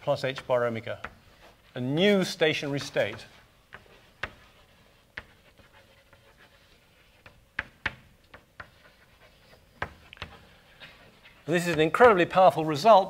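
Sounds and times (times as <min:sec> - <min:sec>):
taps and clicks on board: 0:07.6 - 0:08.7.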